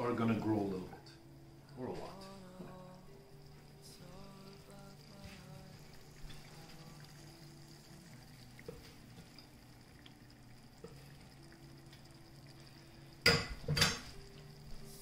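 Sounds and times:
faint steady hum: 0.0s - 15.0s
pot of water simmering: 0.2s - 15.0s
kitchenware clinking: 13.2s - 14.2s.

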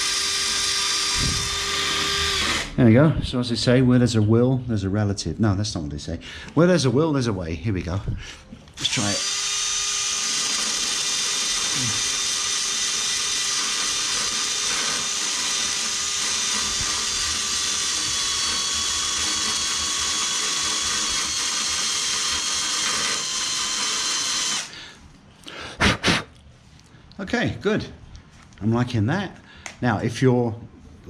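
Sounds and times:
electric drill grinding metal: 0.0s - 2.8s, 8.8s - 24.8s.

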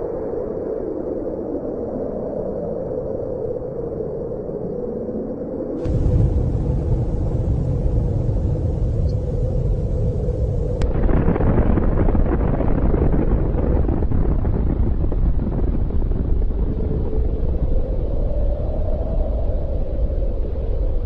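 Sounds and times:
deep explosion rumble: 5.8s - 19.3s.

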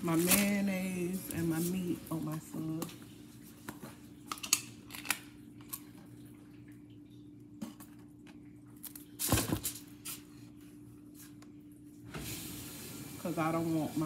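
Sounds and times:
soft squishing and small clicks: 10.0s - 11.8s.

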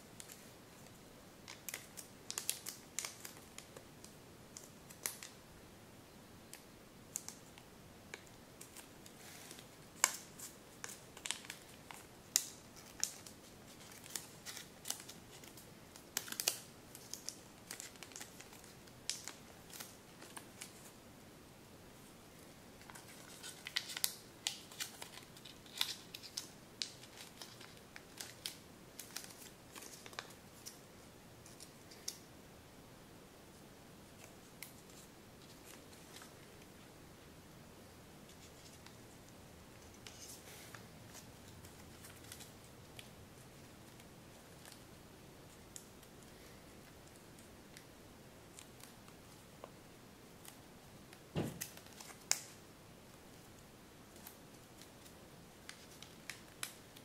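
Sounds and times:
paper crinkling being folded: 0.2s - 5.4s, 8.1s - 21.0s, 22.8s - 30.8s, 34.2s - 36.9s, 39.7s - 44.9s, 51.3s - 52.6s, 53.3s - 57.0s.

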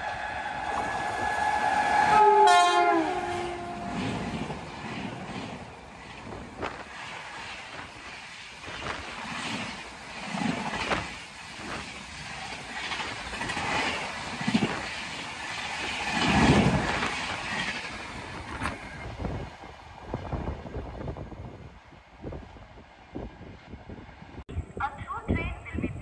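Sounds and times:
train coaches passing: 0.0s - 24.4s
wheels clattering over rail joints: 3.5s - 19.6s.

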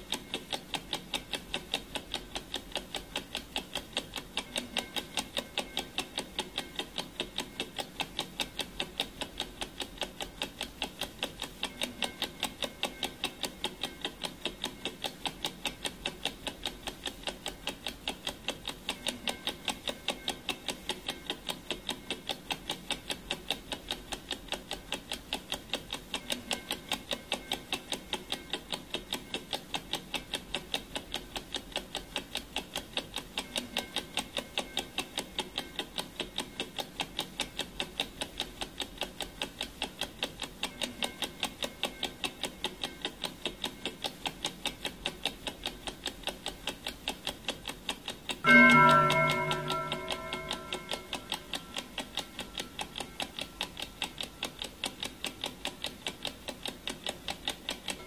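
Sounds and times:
clock ticking: 0.0s - 58.0s.

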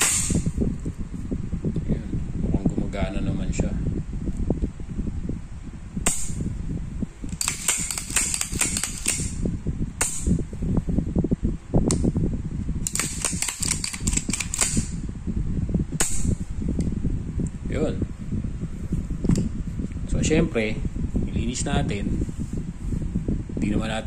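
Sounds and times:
pistol slide metallic clicks: 7.3s - 9.4s, 12.9s - 15.0s
low handling rub: 18.1s - 23.4s.

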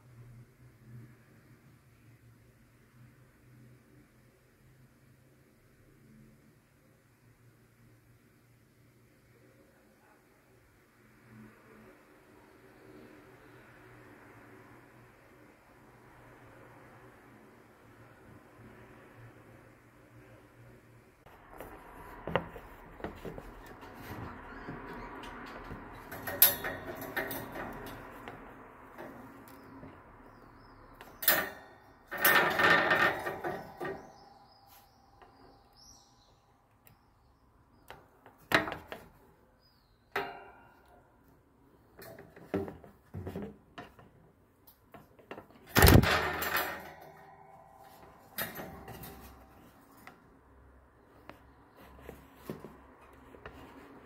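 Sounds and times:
bird cage clicks and rattling: 25.0s - 29.9s, 31.0s - 34.2s, 45.3s - 50.2s.

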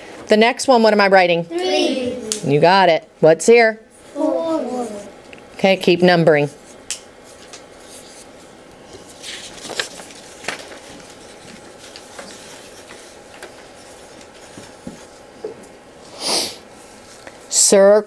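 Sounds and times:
paper rustling: 6.6s - 15.3s
pencils writing on paper: 10.9s - 15.2s.

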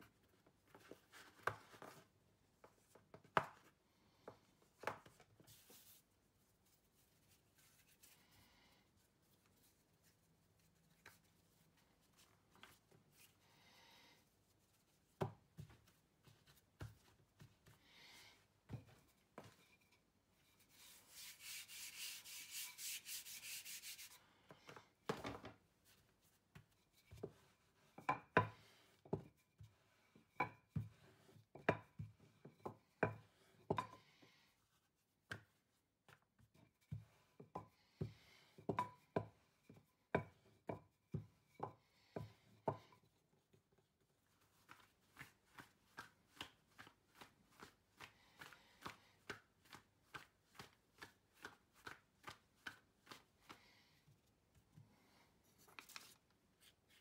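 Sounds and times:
hands patting dough: 14.5s - 34.0s, 35.2s - 54.8s.

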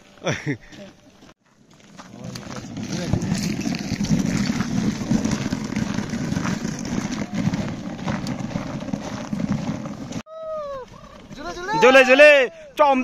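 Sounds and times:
boots crunching on ice: 1.4s - 10.3s.

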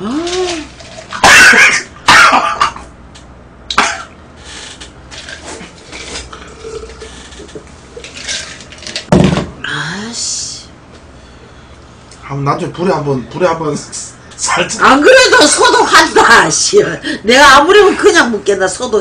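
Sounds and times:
man coughing: 1.2s - 2.9s, 3.7s - 4.2s.

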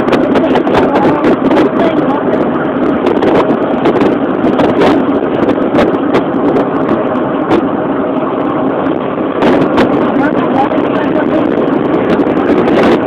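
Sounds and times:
vehicle engine and road noise: 0.0s - 13.0s.

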